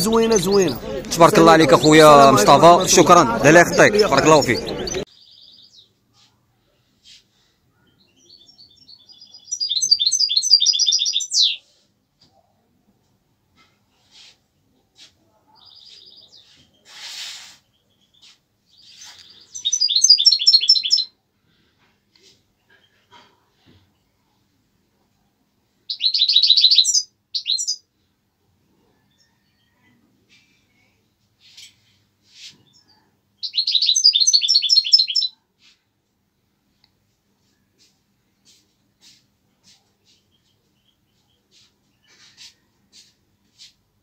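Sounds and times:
songbird singing: 0.0 - 6.0, 7.7 - 11.7, 15.5 - 16.9, 17.6 - 21.2, 25.8 - 27.9, 32.4 - 35.4, 38.4 - 43.7
songbird calls and trill: 7.9 - 11.6, 17.7 - 21.1, 25.9 - 27.8, 32.6 - 35.4
brief rustle: 41.5 - 43.8.

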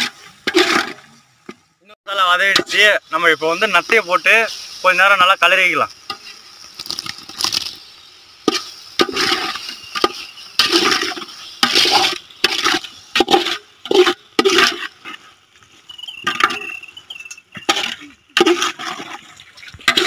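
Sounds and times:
metal ladle scraping a pot: 0.0 - 1.2, 8.4 - 15.3, 17.6 - 20.0.

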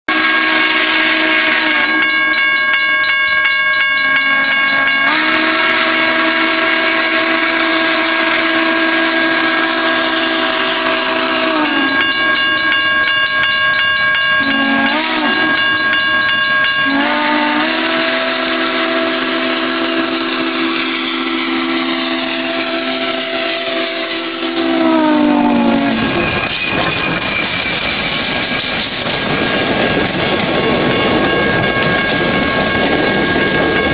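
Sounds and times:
steam locomotive whistle blasts: 0.1 - 2.6, 3.4 - 13.1, 14.4 - 27.3.

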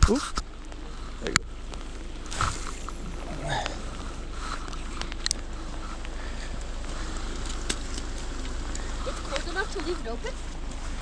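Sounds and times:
steady rain hiss: 0.1 - 11.0.

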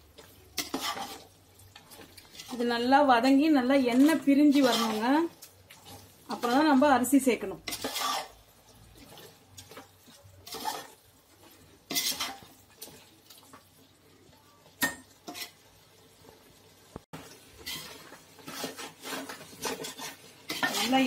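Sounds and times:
metal ladle scraping metal pot: 0.6 - 1.3, 3.8 - 5.2, 7.7 - 8.4, 10.4 - 11.0, 11.9 - 12.5, 17.6 - 21.0.

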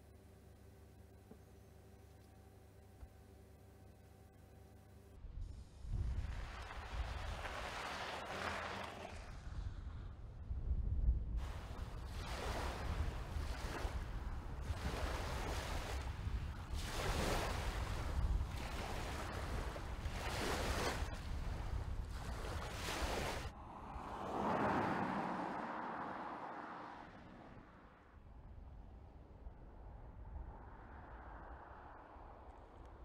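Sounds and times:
wind buffeting microphone: 5.4 - 8.4, 9.1 - 24.1
small waves lapping: 6.0 - 9.4, 11.4 - 26.7
car passing tyre noise: 6.0 - 10.2, 22.8 - 28.2, 30.4 - 33.0.

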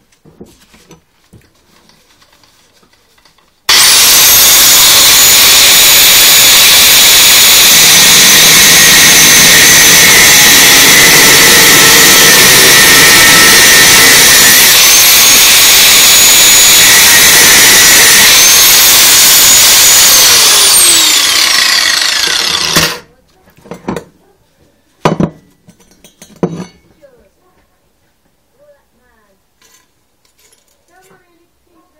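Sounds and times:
angle grinder cutting steel: 3.7 - 23.1.

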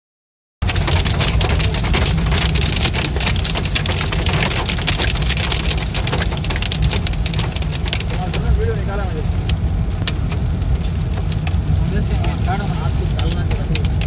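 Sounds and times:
heavy rain on a car: 0.6 - 14.0.

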